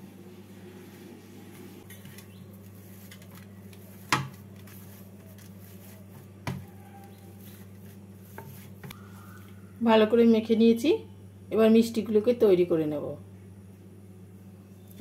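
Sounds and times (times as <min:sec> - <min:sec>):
steady low hum: 0:00.0 - 0:15.0
hands kneading dough: 0:01.4 - 0:09.4.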